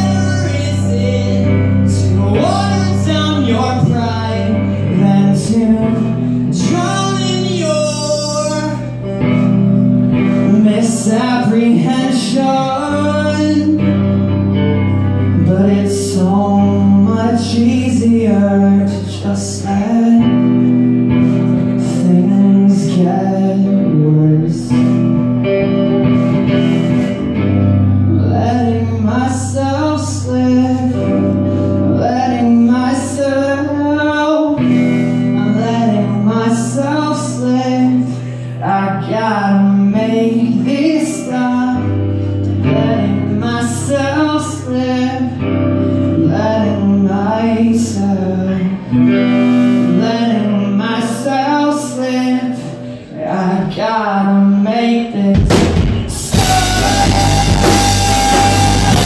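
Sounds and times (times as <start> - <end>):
electric bass: 0.0 - 59.0
electric guitar: 0.0 - 59.0
man singing: 0.0 - 59.0
drum kit with cymbal hits: 24.7 - 27.7, 55.4 - 59.0.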